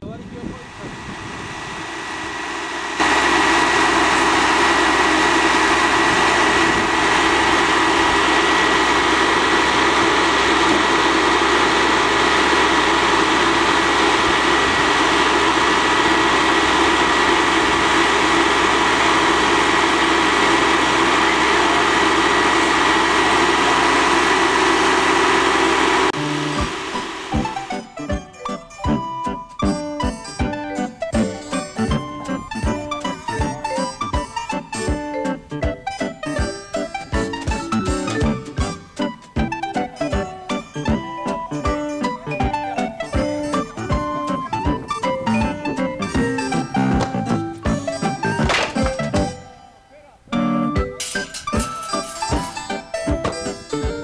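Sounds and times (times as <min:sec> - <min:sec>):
steady high whine: 0:00.0 - 0:28.1
diesel engine running loudly: 0:00.1 - 0:28.0, 0:40.8 - 0:48.6.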